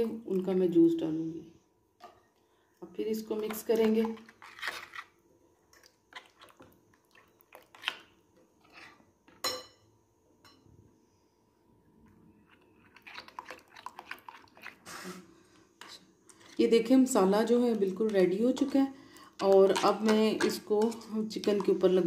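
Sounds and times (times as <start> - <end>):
spoon stirring thick marinade: 3.3 - 9.5, 12.3 - 14.8, 15.6 - 22.0
spoon clinking on glass bowl: 9.4 - 9.8.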